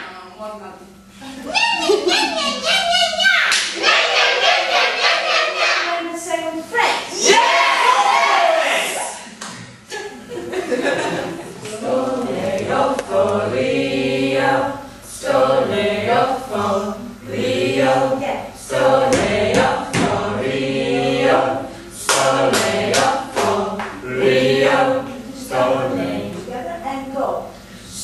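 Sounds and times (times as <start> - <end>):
group singing unaccompanied: 3.7 - 6.0, 10.8 - 26.6.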